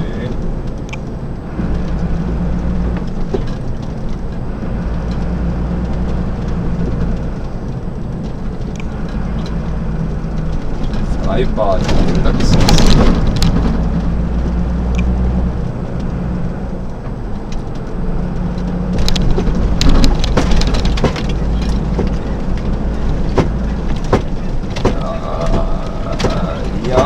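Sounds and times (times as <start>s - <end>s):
truck engine drone: 0.0s - 27.0s
clicks and rattles: 0.2s - 15.2s, 16.8s - 27.0s.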